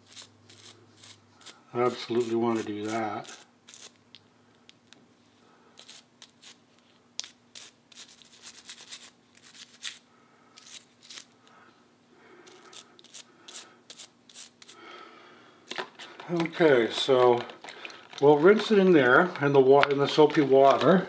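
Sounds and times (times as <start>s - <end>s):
toothbrush scrubbing metal part: 0.0s - 4.0s.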